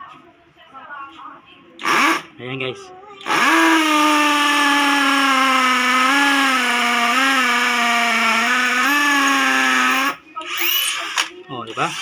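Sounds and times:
hammer drill boring into concrete: 0:01.8 - 0:02.2, 0:03.2 - 0:12.0.

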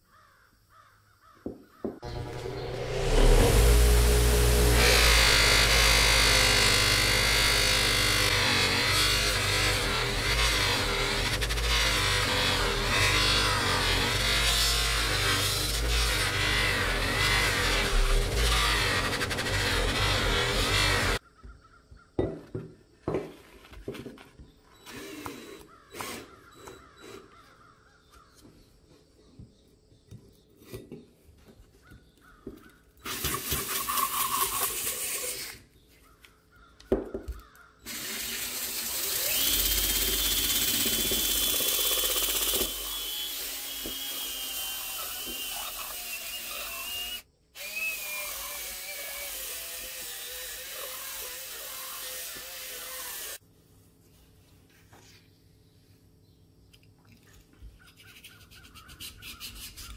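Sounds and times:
cordless drill whining: 0:02.0 - 0:21.2, 0:24.8 - 0:27.2, 0:37.9 - 0:53.4.

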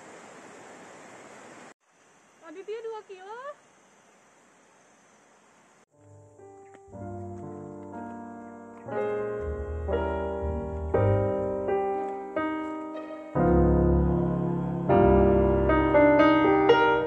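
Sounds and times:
slow piano chords: 0:06.0 - 0:17.0.

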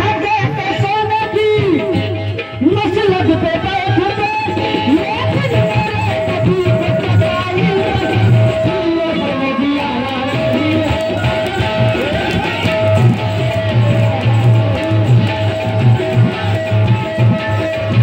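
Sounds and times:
plucked-string melody: 0:01.6 - 0:18.0
steady low drum beat: 0:10.6 - 0:18.0.

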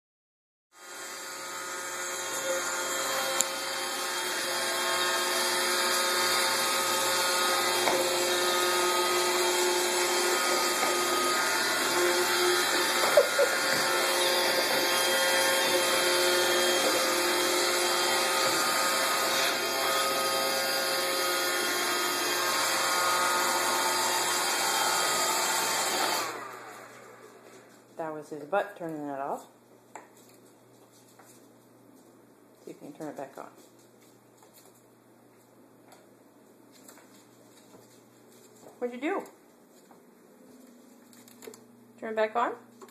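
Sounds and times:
robot vacuum motor whine: 0:00.8 - 0:27.1.

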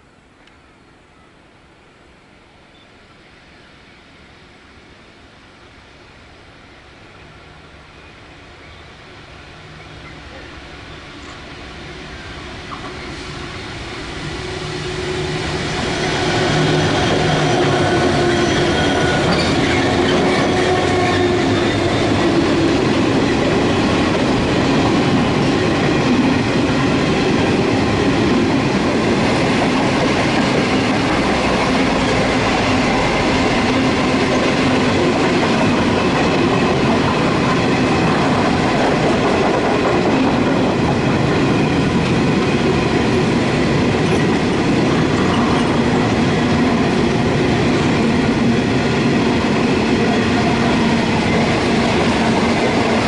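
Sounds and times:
diesel locomotive drone: 0:00.0 - 0:53.0
train wheels clacking on rails: 0:12.5 - 0:53.0.

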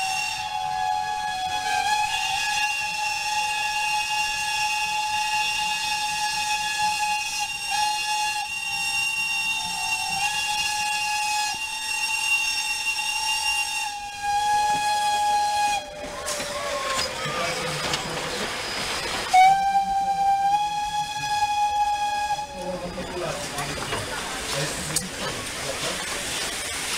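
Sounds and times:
steam locomotive whistle: 0:00.0 - 0:17.5, 0:19.3 - 0:23.3.

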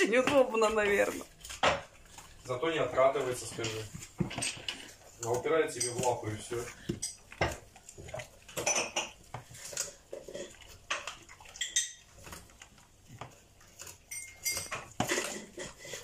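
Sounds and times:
dog teeth crunching watermelon rind: 0:00.0 - 0:16.0.

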